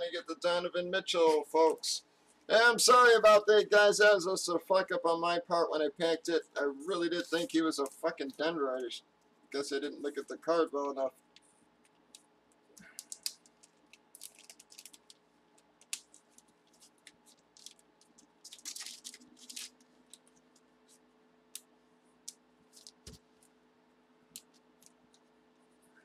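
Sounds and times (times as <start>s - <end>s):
faint steady hum: 0.0s - 26.0s
plastic and paper wrapping crinkling: 12.8s - 21.0s, 22.7s - 23.4s.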